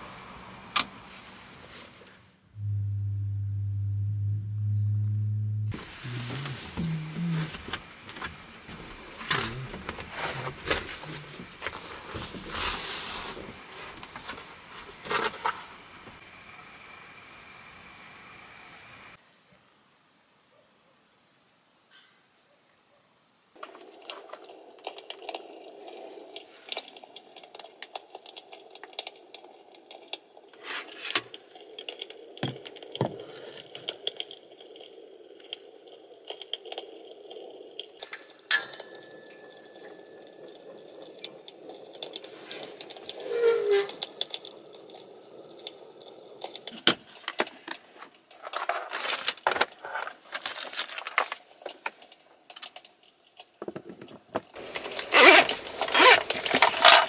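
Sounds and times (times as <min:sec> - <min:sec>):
objects clicking and rattling: 0:23.6 - 0:57.0.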